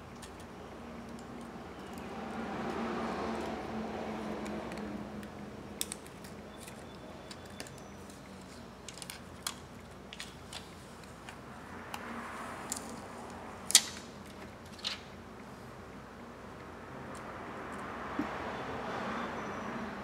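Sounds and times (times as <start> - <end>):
small parts clicking: 4.3 - 12.1.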